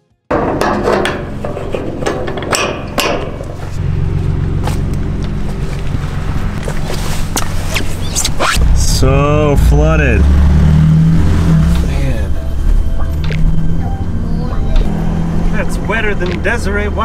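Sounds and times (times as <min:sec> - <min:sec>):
metallic clanks and clicks: 0:00.3 - 0:03.8
truck engine running: 0:01.3 - 0:17.0.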